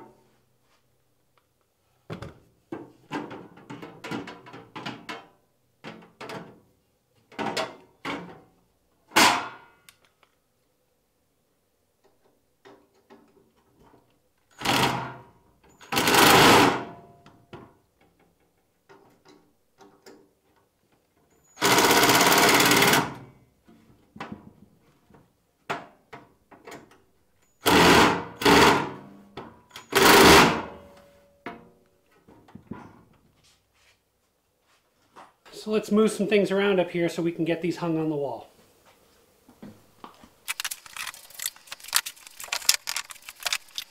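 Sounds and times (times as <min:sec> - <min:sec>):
impact driver hammering screws: 0:15.9 - 0:16.8, 0:21.6 - 0:23.2
small clicks and knocks: 0:40.1 - 0:43.9.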